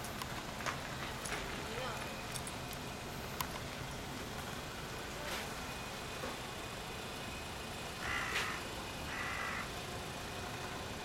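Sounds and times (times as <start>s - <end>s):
street background noise: 0.0s - 11.0s
crow cawing: 8.0s - 9.7s.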